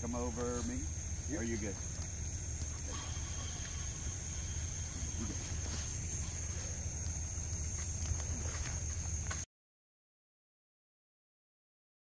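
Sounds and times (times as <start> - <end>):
insects chorus: 0.0 - 9.5.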